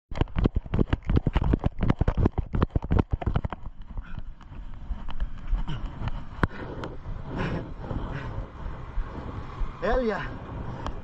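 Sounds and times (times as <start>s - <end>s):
handheld camera thuds: 0.1s - 6.6s
running footsteps on pavement: 0.1s - 11.0s.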